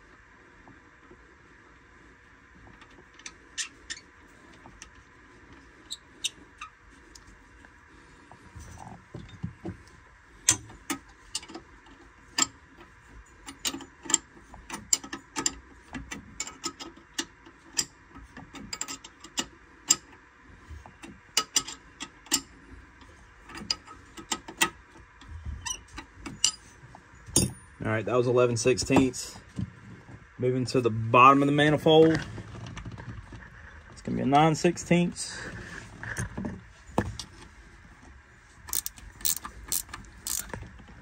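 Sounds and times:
wrench metallic clicks: 0:38.7 - 0:40.6.

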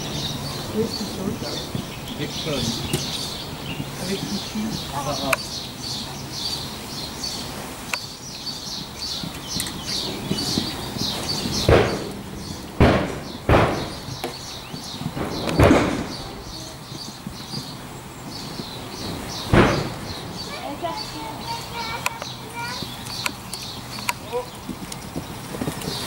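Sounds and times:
birds chirping: 0:00.0 - 0:26.0
loud dull thumps: 0:10.3 - 0:17.7, 0:19.1 - 0:20.6.

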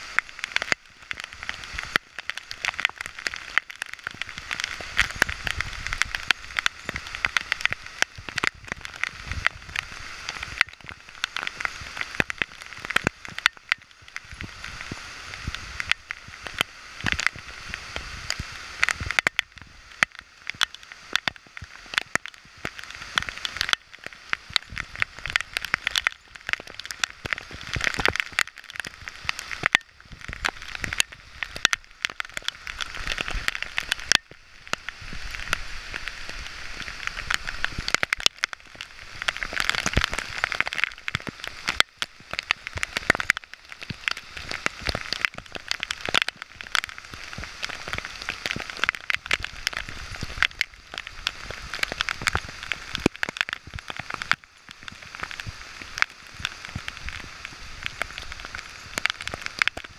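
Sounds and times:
raindrops tapping on camera: 0:00.0 - 0:59.9
steady rain falling: 0:00.0 - 0:59.9.

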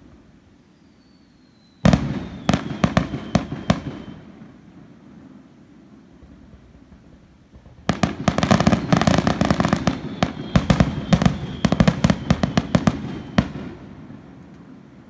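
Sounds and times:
fireworks cracks and bangs: 0:01.8 - 0:04.8, 0:06.1 - 0:15.0.

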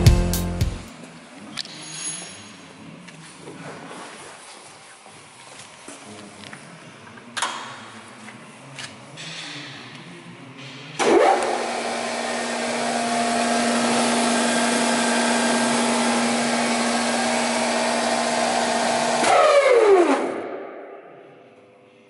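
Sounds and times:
spindle moulder motor whining: 0:11.0 - 0:20.2.

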